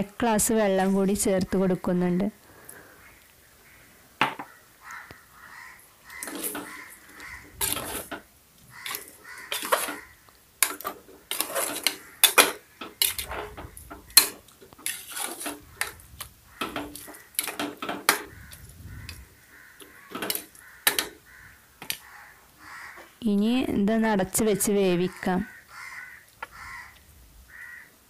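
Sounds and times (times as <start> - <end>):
spoon scraping metal pot: 6.1 - 8.2, 8.8 - 18.6, 19.8 - 21.2.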